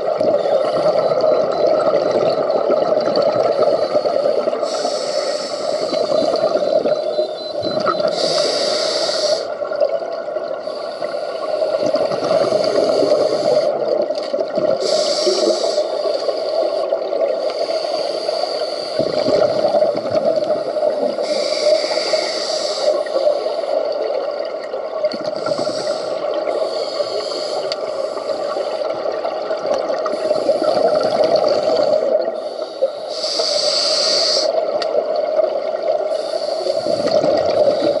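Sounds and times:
gurgling exhaled bubbles: 0:00.0 - 0:04.8, 0:05.5 - 0:08.4, 0:11.5 - 0:17.5, 0:19.0 - 0:22.2, 0:23.0 - 0:27.2, 0:27.8 - 0:32.4, 0:34.6 - 0:38.0
underwater background noise: 0:00.0 - 0:38.0
regulator inhalation hiss: 0:03.6 - 0:06.1, 0:08.1 - 0:09.6, 0:10.6 - 0:13.8, 0:14.8 - 0:19.3, 0:20.5 - 0:23.9, 0:25.4 - 0:28.9, 0:30.1 - 0:34.6, 0:36.1 - 0:38.0.

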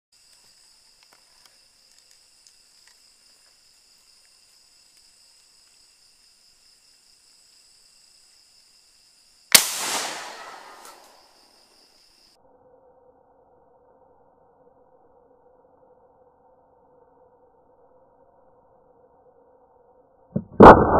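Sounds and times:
insect chorus: 0:00.1 - 0:20.2
faint ticks: 0:00.2 - 0:05.9
rifle shot with echo: 0:09.5 - 0:11.2.

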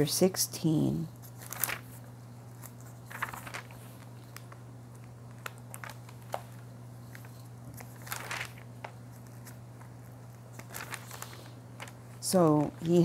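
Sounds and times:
low electrical hum: 0:00.0 - 0:13.0
book pages rustling: 0:01.2 - 0:13.0.

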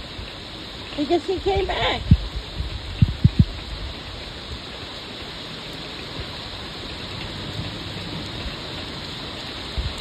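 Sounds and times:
heavy rain pouring: 0:00.0 - 0:10.0.

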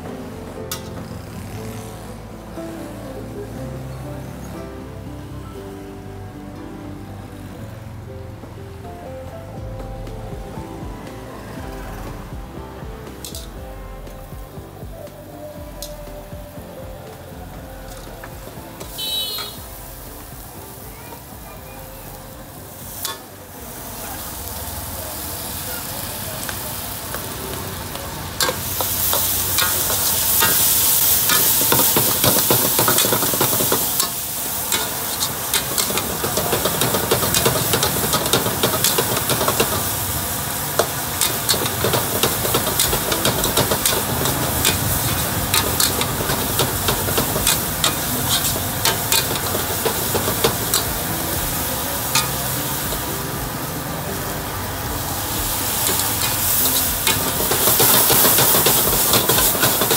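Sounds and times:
hot oil sizzling: 0:00.0 - 0:59.9
metal ladle scraping wok: 0:28.2 - 0:53.3, 0:55.5 - 0:59.9.

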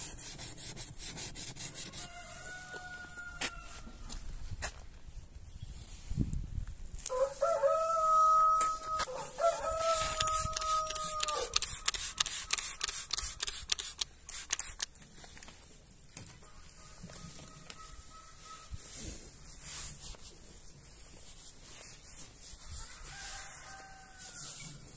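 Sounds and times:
rooster crowing: 0:01.9 - 0:03.9, 0:07.1 - 0:12.1, 0:22.8 - 0:24.8
spray bottle hissing sprays: 0:09.8 - 0:14.9.

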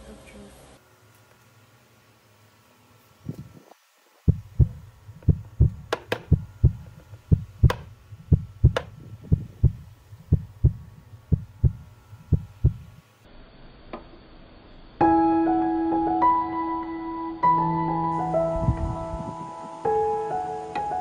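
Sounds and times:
fast heartbeat thumps: 0:04.3 - 0:13.0.

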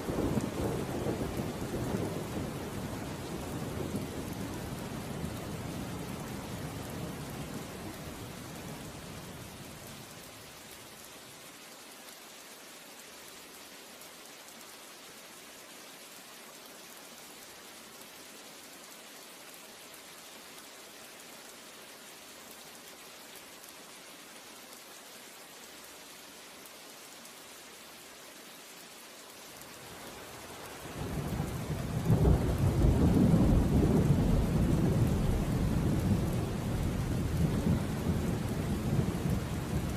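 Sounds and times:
rain hiss: 0:00.0 - 0:39.9
rolling thunder: 0:31.6 - 0:39.9.

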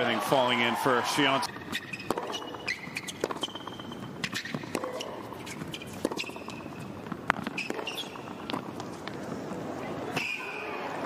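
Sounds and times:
shoes squeaking on court: 0:00.0 - 0:09.4
ball bouncing: 0:01.4 - 0:09.3
racket striking tennis ball: 0:01.7 - 0:09.0.

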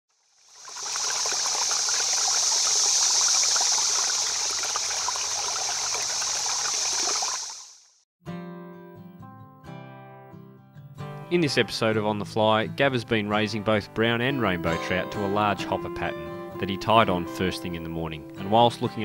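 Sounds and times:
stream water rushing: 0:00.4 - 0:07.8
acoustic guitar music: 0:08.2 - 0:19.0.

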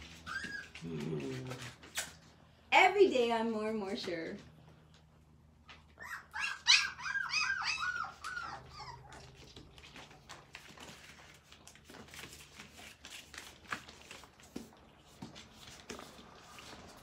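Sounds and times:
puppy whimpering: 0:00.0 - 0:01.8, 0:05.9 - 0:10.4.

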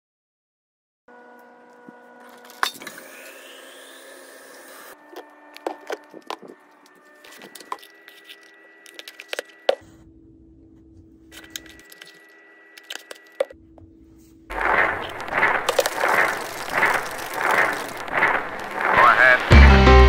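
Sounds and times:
rhythmic pulsing rushing sound: 0:14.5 - 0:20.0.

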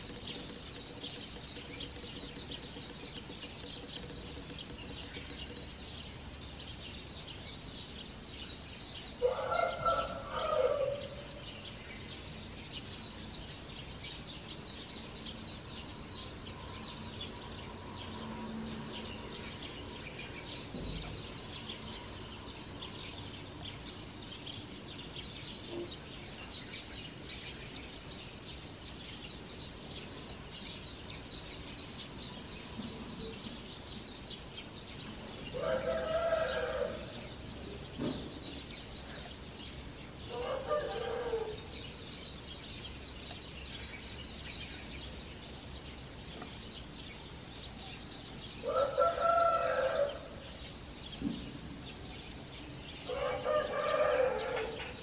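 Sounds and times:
songbirds twittering: 0:00.0 - 0:55.0
rooster crowing: 0:09.2 - 0:11.2, 0:35.6 - 0:37.1, 0:40.3 - 0:41.6, 0:48.6 - 0:50.3, 0:53.1 - 0:54.9.

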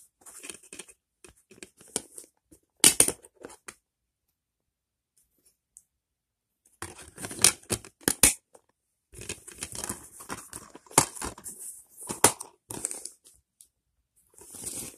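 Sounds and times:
plastic case rustling and scraping: 0:00.1 - 0:03.7, 0:06.8 - 0:08.6, 0:09.2 - 0:13.4, 0:14.3 - 0:14.9
plastic case clicks and crackles: 0:06.8 - 0:11.4.

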